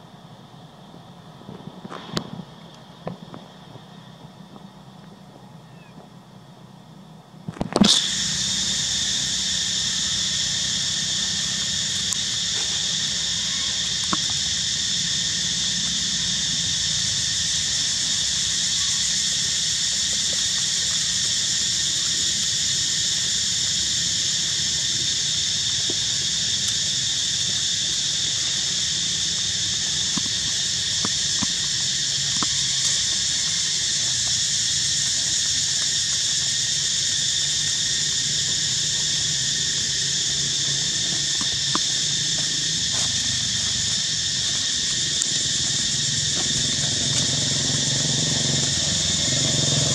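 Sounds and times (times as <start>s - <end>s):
insects droning in chorus: 0.0s - 49.9s.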